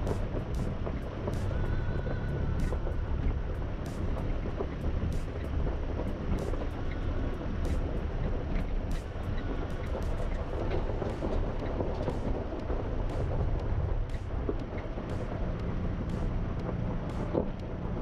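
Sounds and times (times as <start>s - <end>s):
engine running: 0.0s - 18.0s
tyres rumbling on gravel: 0.0s - 18.0s.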